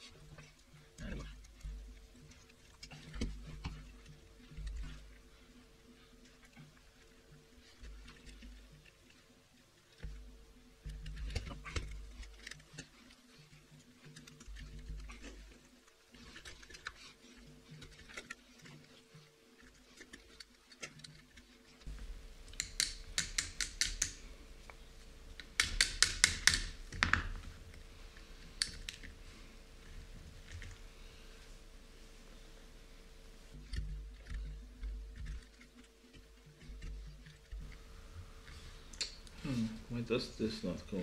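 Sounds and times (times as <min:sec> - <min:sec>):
small metal parts clicking: 0:22.5 - 0:24.2.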